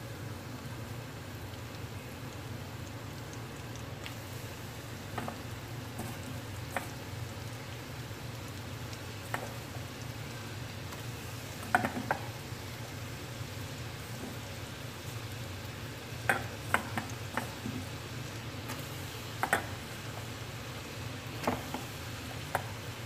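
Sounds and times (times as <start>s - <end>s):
oil sizzling with pops: 0.0s - 23.0s.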